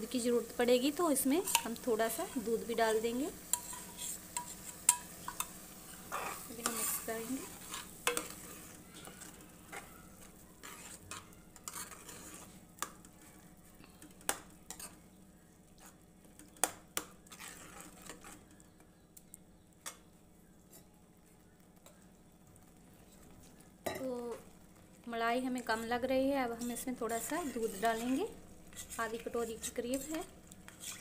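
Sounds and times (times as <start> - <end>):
metal spoon scraping a pan: 0.9 - 13.4, 14.0 - 15.0, 15.8 - 18.6, 25.6 - 31.0.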